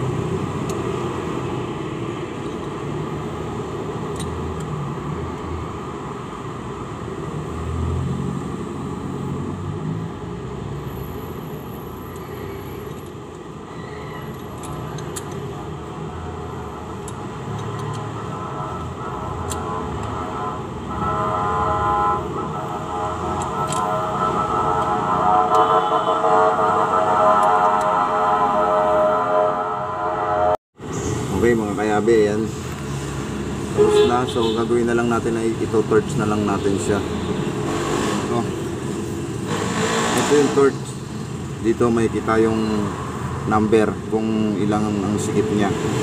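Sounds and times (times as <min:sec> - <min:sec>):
passing vehicle engine: 0:00.0 - 0:43.5, 0:44.8 - 0:46.0
traffic rumble: 0:00.0 - 0:46.0
metallic wrench clicks: 0:04.1 - 0:04.7, 0:14.3 - 0:15.5, 0:17.0 - 0:18.1, 0:23.6 - 0:23.8.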